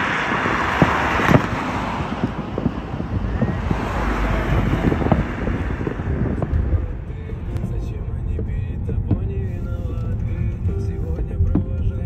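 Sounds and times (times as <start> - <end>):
car driving past: 0.0 - 8.7
wind rumble on microphone: 0.0 - 12.0.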